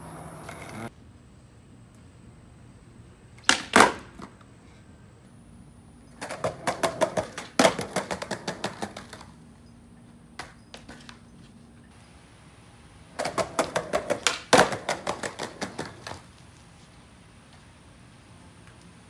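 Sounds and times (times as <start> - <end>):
skateboard clattering on concrete: 3.4 - 4.4, 6.1 - 9.4, 10.4 - 11.2, 13.1 - 16.5
skateboard slap: 3.4 - 4.4, 6.2 - 9.4, 10.4 - 11.2, 13.1 - 16.4.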